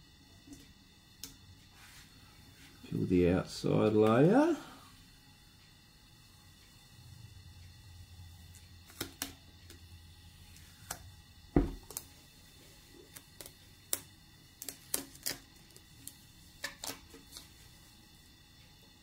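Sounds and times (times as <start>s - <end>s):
dull thump: 11.6s - 11.8s
tape crackling as it is peeled: 11.8s - 12.2s, 13.0s - 17.6s.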